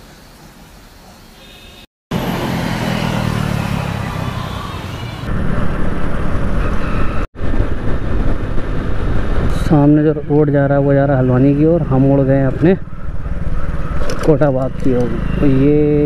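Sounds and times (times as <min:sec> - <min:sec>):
wind rushing over microphone: 0:05.3 - 0:10.3.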